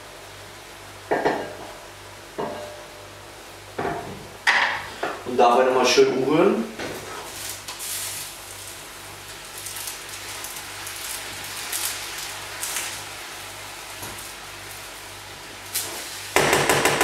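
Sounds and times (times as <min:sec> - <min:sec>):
food sizzling in a frying pan: 0:01.0 - 0:16.4.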